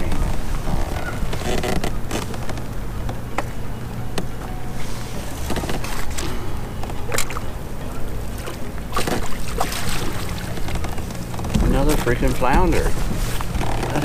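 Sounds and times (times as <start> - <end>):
fish splashing in water: 8.2 - 11.0.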